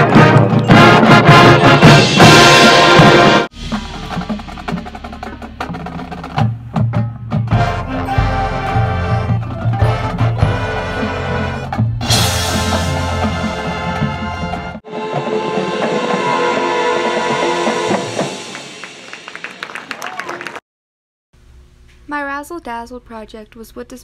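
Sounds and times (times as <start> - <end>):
marching band playing: 0.0 - 20.0.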